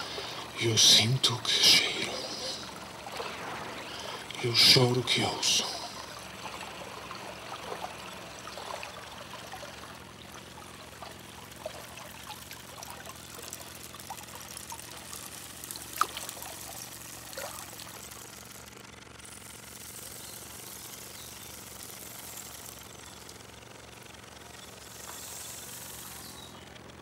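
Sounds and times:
water trickling and dripping: 2.1 - 4.7, 5.7 - 18.7.

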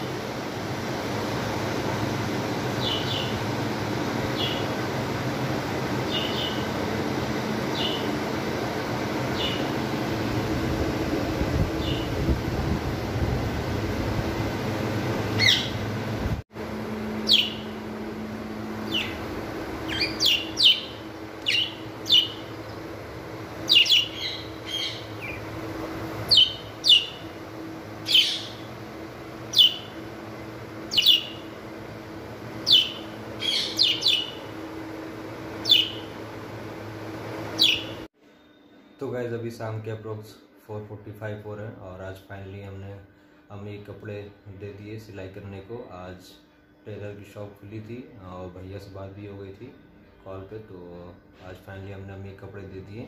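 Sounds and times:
steady background hum: 0.0 - 53.0
budgerigars chirping: 15.4 - 15.8, 17.2 - 17.7, 18.9 - 19.2, 19.9 - 22.5, 23.7 - 25.4, 26.3 - 27.2, 28.1 - 28.7, 29.5 - 30.0, 30.9 - 31.5, 32.6 - 34.5, 35.6 - 36.1, 37.6 - 38.0.

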